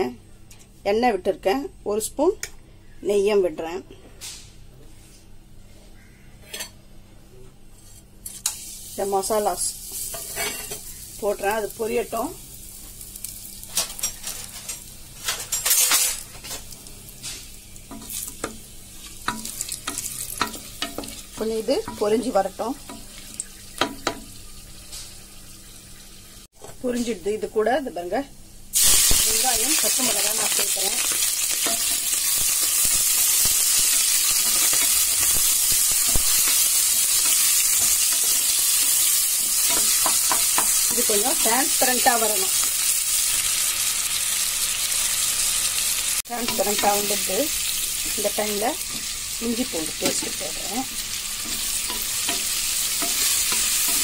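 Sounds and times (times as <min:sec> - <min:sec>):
spices sizzling in hot oil: 0:07.9 - 0:27.8, 0:28.7 - 0:54.0
crackles and pops: 0:32.2 - 0:36.6.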